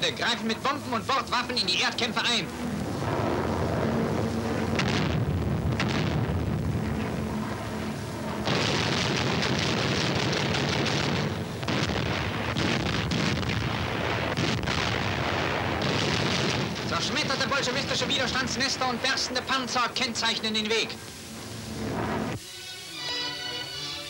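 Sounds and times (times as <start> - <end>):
low drone: 0.0 - 16.0, 17.6 - 24.0
explosions and gunfire: 2.9 - 7.2, 8.4 - 19.4.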